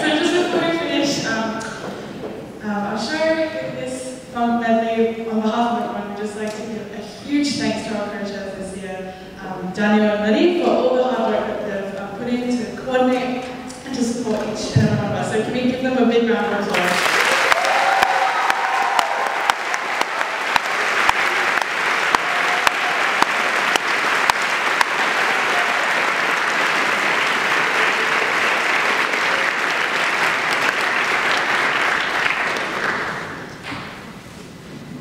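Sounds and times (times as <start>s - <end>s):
large audience applauding: 16.7s - 33.6s.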